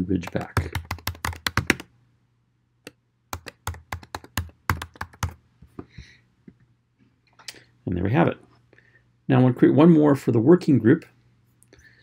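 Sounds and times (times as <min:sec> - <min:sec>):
typing on computer keyboard: 0:00.2 - 0:01.9, 0:03.3 - 0:05.4.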